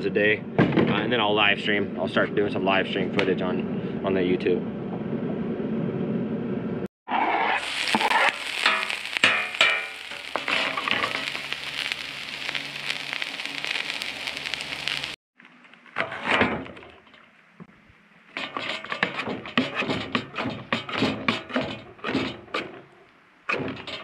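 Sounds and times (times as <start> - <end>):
onion sizzling on a griddle: 7.2 - 15.2
scrapes and clicks on griddle: 7.4 - 15.0, 18.4 - 22.9, 23.5 - 24.0.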